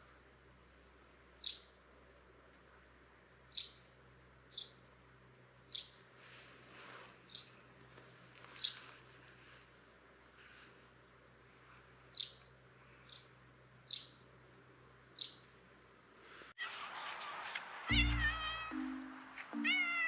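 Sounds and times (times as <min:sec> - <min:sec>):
bird chirping high falling notes: 0:17.8 - 0:20.0.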